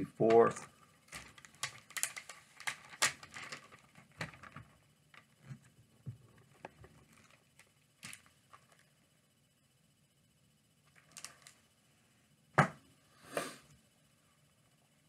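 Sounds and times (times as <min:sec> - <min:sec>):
plastic bags crinkling: 0:00.4 - 0:05.4, 0:06.4 - 0:08.8, 0:11.0 - 0:11.6.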